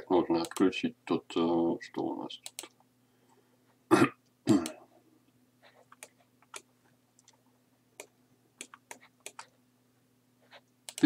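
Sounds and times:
faint electrical hum: 0.0 - 11.0
mouse and keyboard clicks: 5.8 - 7.4, 8.0 - 9.5.

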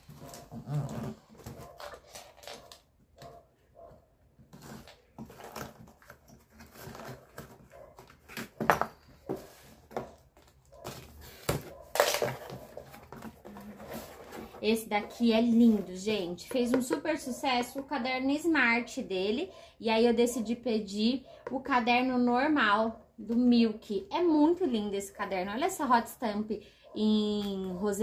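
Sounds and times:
packing tape tearing: 0.0 - 2.9, 4.5 - 9.0, 10.9 - 12.6
cardboard rustling and scraping: 0.0 - 3.5, 4.4 - 16.7.

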